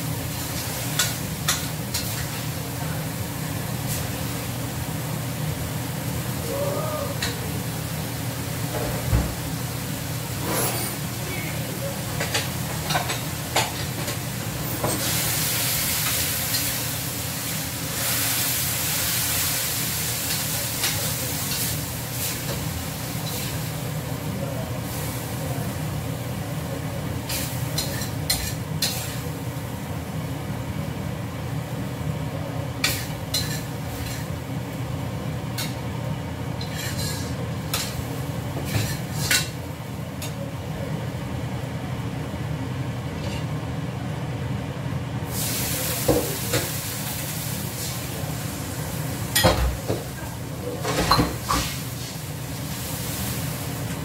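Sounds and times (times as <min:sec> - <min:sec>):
food sizzling in a wok: 0:00.0 - 0:40.6, 0:45.2 - 0:54.0
metal spatula scraping a wok: 0:36.6 - 0:38.0.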